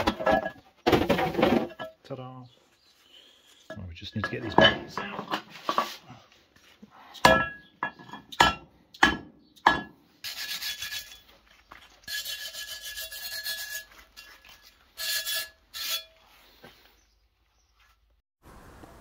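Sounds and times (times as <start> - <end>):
harsh metal scraping: 10.2 - 16.4.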